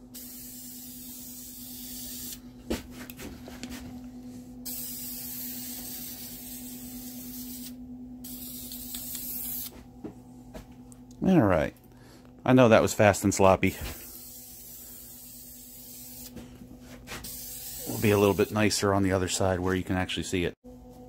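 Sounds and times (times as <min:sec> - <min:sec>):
spray paint can hissing: 0:00.1 - 0:02.4, 0:04.7 - 0:09.7, 0:14.0 - 0:16.3, 0:17.2 - 0:18.6.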